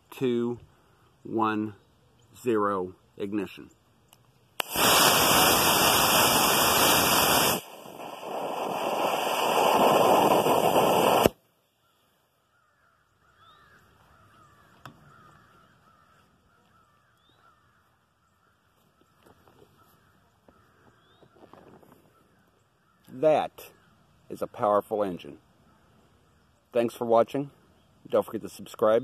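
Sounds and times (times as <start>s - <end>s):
sharp pop: 4.6s - 5.6s
rocket motor rushing noise: 4.6s - 11.4s
faint bird calls: 11.6s - 24.6s, 25.2s - 26.8s.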